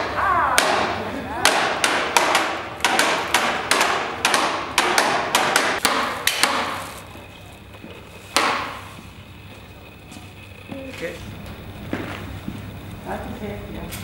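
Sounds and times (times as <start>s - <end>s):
sharp ringing knocks: 0.0s - 6.8s.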